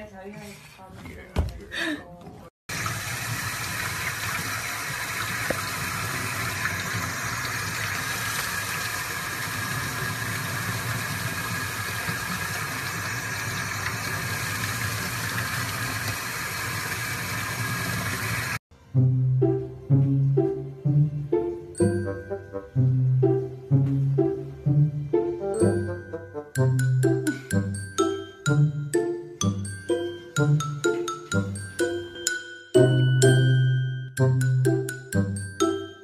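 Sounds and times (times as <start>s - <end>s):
faucet running: 2.7s - 18.6s.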